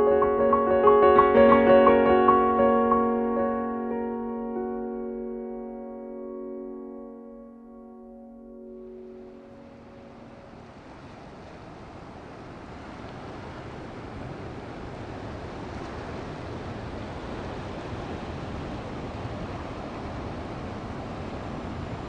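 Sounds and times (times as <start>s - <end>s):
piano notes: 0.0s - 11.1s.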